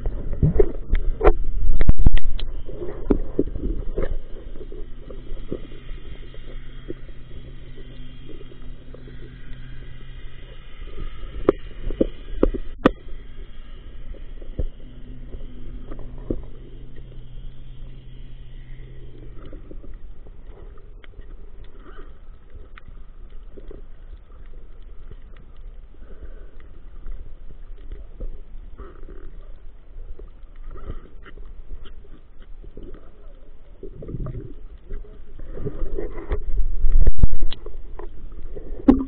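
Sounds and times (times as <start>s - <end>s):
muffled underwater churning rumble: 0.0s - 39.0s
steady underwater hum: 0.0s - 39.0s
sharp knocks underwater: 0.1s - 4.2s, 38.8s - 39.0s.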